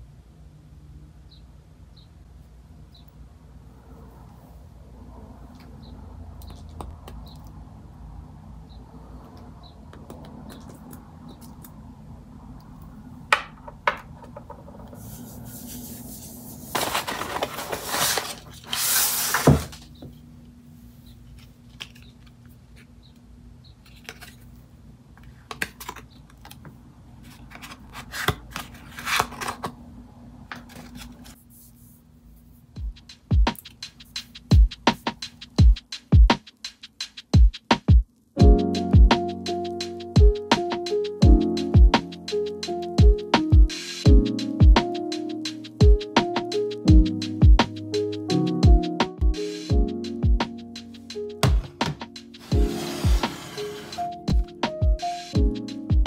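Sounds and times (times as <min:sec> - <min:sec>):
paper rustling: 0:15.0 - 0:20.0, 0:23.8 - 0:26.6, 0:27.2 - 0:29.8, 0:30.5 - 0:31.9.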